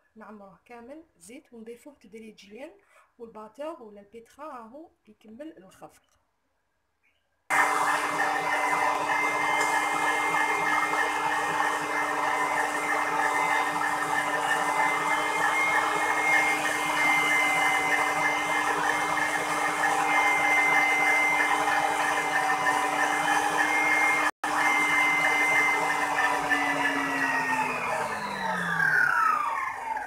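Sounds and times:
electric stand mixer whirring: 7.5s - 30.0s.

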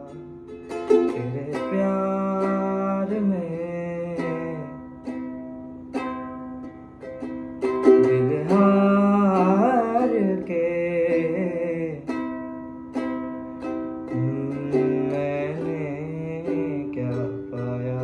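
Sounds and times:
man singing: 0.0s - 0.3s, 0.9s - 4.9s, 7.6s - 12.3s, 14.0s - 18.0s
ukulele strummed chords: 0.0s - 18.0s.

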